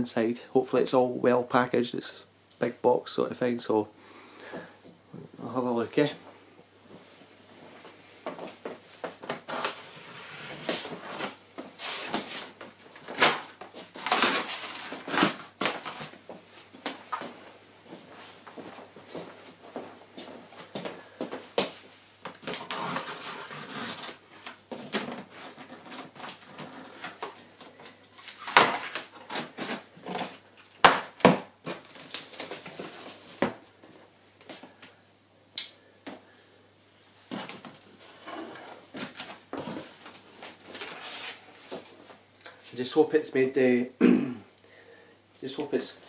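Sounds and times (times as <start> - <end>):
cardboard rustling and scraping: 9.0 - 16.2, 22.4 - 30.5, 31.2 - 33.6, 37.3 - 42.0.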